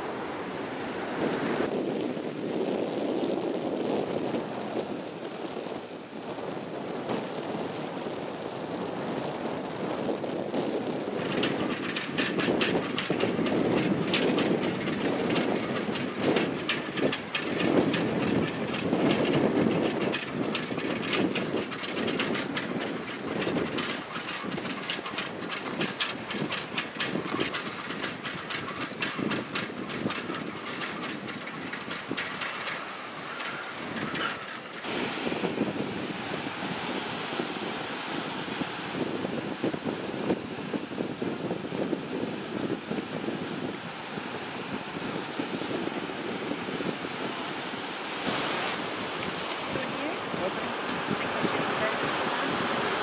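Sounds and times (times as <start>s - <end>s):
wind buffeting microphone: 0.5s - 53.0s
rapid ticking and rattling: 11.2s - 35.3s.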